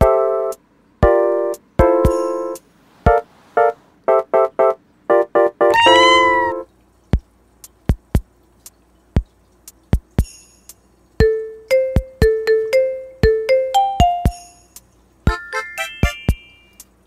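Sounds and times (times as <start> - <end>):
kitten meowing: 5.7 - 6.6
keyboard background music: 15.3 - 16.9.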